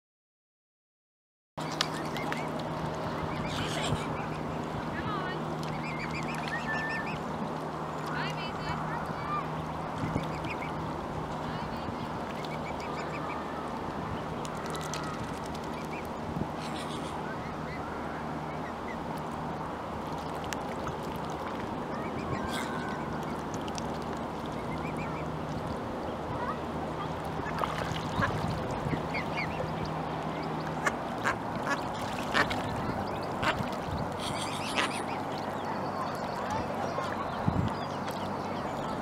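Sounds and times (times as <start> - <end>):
ducks quacking: 3.2 - 4.6, 15.8 - 17.8, 27.3 - 38.3.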